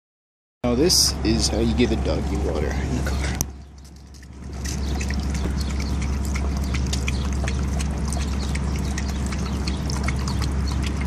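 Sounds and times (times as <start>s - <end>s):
steady low hum: 0.6s - 11.0s
dog lapping water: 1.6s - 11.0s
water poured from plastic bottle: 3.8s - 11.0s.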